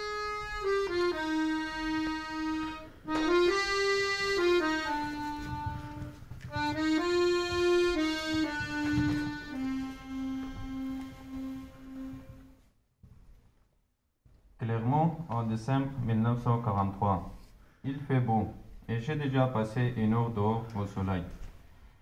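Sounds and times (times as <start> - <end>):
button accordion melody: 0.0 - 12.7.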